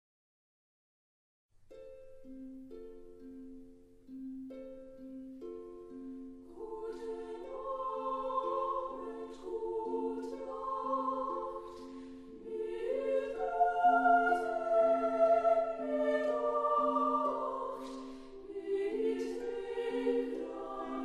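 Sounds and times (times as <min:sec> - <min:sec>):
choir singing held notes: 0:06.5 - 0:21.0.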